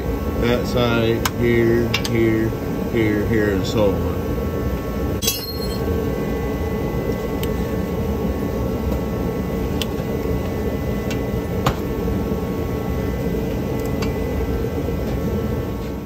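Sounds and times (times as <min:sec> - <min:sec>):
steady background hum: 0:00.0 - 0:16.0
metal tool clink: 0:05.2 - 0:05.8.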